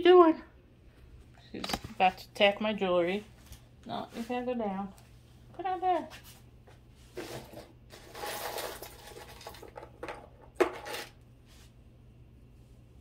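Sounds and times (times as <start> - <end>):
beads clinking and rustling: 7.9 - 9.7.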